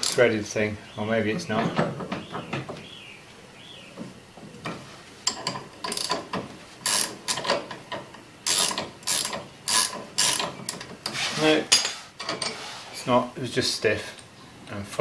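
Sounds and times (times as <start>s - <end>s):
ratchet spanner clicking: 0.0s - 0.2s, 6.8s - 7.6s, 8.4s - 10.9s.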